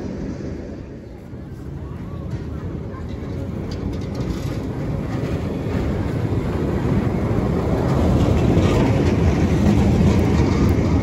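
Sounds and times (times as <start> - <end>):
tram wheels rumbling on rails: 0.0 - 11.0.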